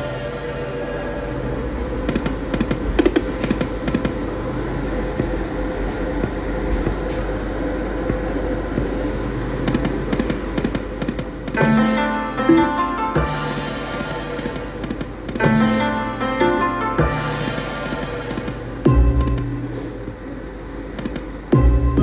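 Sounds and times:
gaming room hum: 0.0s - 22.0s.

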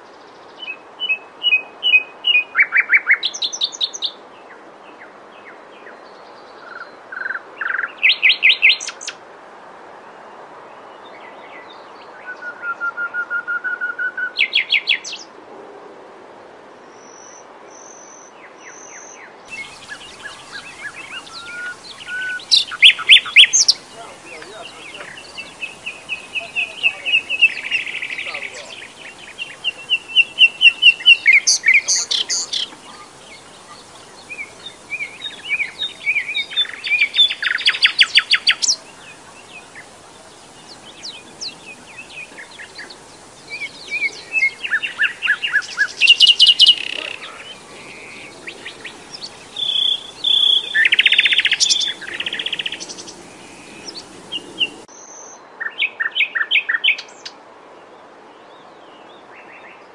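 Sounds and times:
warbler singing trills: 0.0s - 4.2s, 5.8s - 9.2s, 16.9s - 57.3s.

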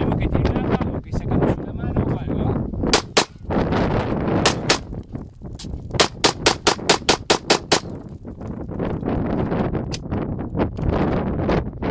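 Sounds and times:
pistol shots: 2.9s - 3.4s, 4.4s - 4.9s, 6.0s - 8.0s.

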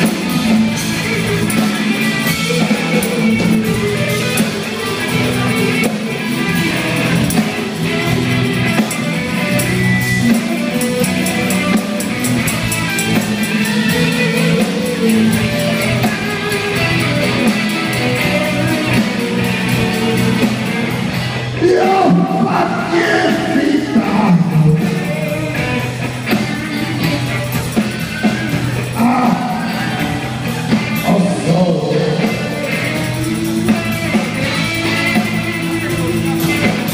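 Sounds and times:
guitar playing chords: 0.0s - 36.9s.

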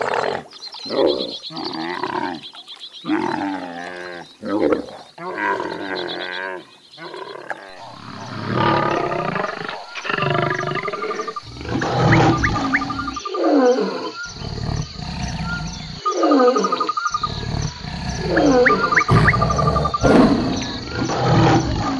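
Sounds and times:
lions roaring: 7.1s - 21.9s.

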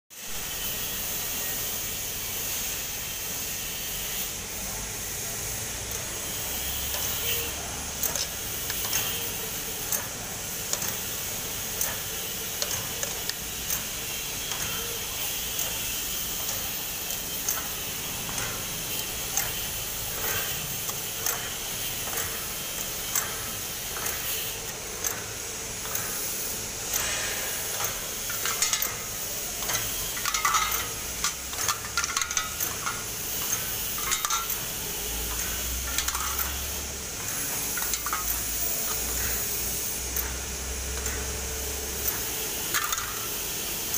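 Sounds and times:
machine hiss: 0.1s - 43.9s
metallic clicks and clatter: 8.0s - 9.2s, 26.9s - 39.4s, 42.0s - 43.4s.

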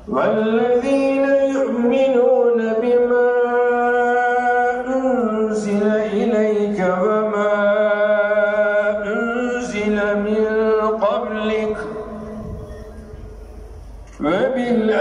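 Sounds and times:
man chanting recitation: 0.0s - 12.9s, 14.1s - 15.0s.

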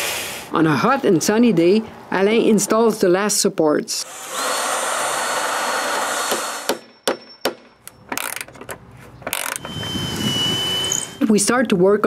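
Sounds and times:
power drill whining through wood: 4.0s - 6.7s, 9.3s - 11.2s
wrench clicking: 9.3s - 9.7s.

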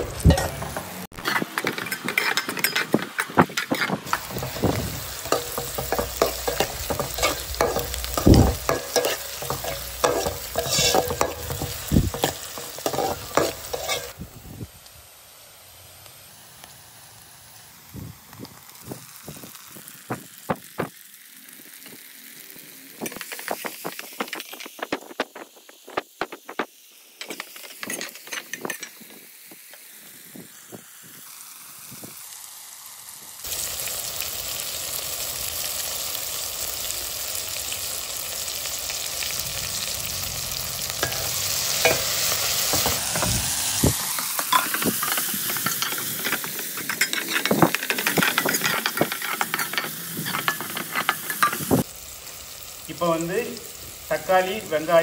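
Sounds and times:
food sizzling in hot oil: 0.0s - 55.0s
ladle scraping a metal pot: 0.3s - 14.2s, 44.4s - 51.7s.

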